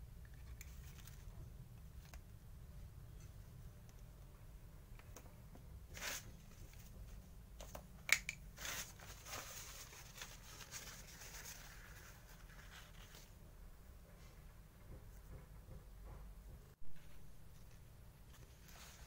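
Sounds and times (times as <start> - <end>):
paper towel rustling: 8.6 - 13.4.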